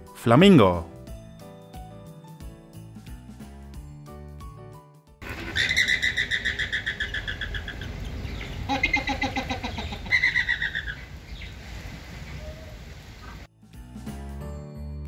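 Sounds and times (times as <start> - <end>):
flamingos chattering calls: 5.2 - 13.5.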